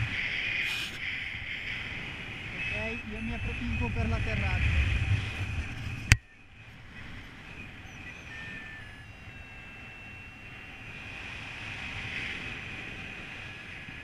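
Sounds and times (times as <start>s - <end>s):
wind rushing over microphone: 0.0s - 14.0s
thin steady high tone: 2.5s - 4.5s, 6.3s - 11.2s.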